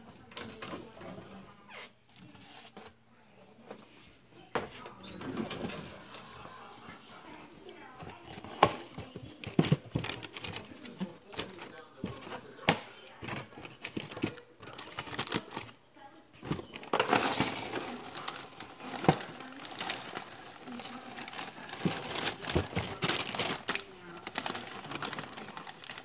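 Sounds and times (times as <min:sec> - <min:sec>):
plastic bag crinkling: 0:08.4 - 0:12.4, 0:13.2 - 0:15.8, 0:16.4 - 0:26.0
cereal pattering into a bowl: 0:16.9 - 0:26.0.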